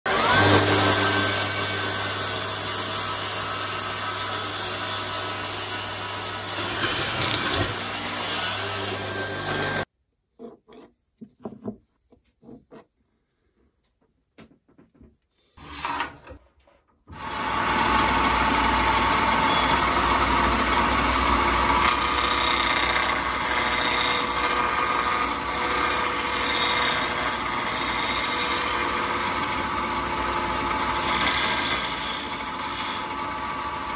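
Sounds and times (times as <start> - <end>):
chisel cutting spinning wood: 0.1 - 9.8, 17.1 - 33.9
wood lathe running: 0.1 - 9.8, 17.1 - 33.9
table saw cutting wood: 0.1 - 9.9, 15.6 - 16.4, 17.1 - 33.9.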